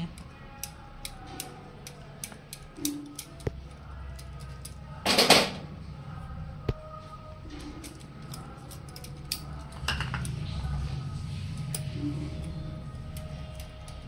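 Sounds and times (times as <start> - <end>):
faint music: 0.0 - 14.0
glass bangles clicking: 7.6 - 10.4.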